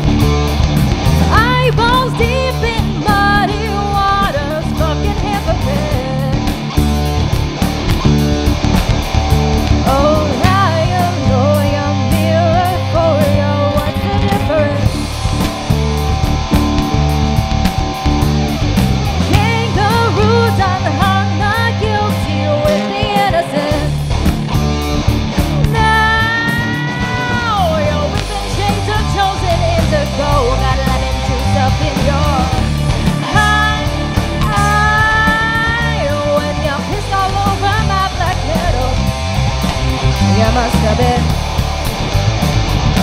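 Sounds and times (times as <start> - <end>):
bass guitar: 0.0 - 43.0
drum kit: 0.0 - 43.0
electric guitar: 0.0 - 43.0
woman singing: 1.3 - 6.5, 9.8 - 15.0, 19.3 - 24.0, 25.7 - 39.1, 40.2 - 41.4.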